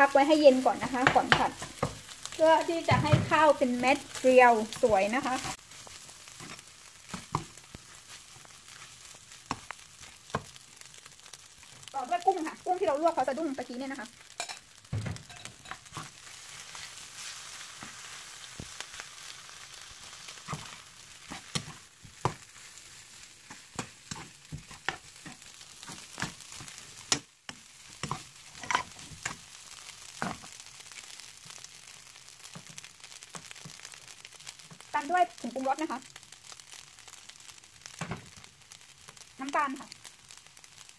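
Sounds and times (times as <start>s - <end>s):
fried rice sizzling in a pan: 0.0s - 40.9s
metal spoon scraping a pan: 14.2s - 18.7s, 20.2s - 22.4s, 23.4s - 29.4s.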